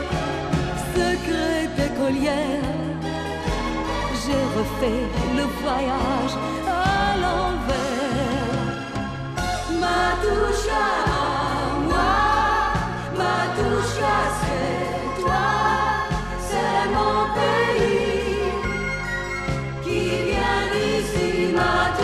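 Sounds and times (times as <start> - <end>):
pop song with backing band: 0.0 - 22.0
voices singing together: 9.6 - 22.0.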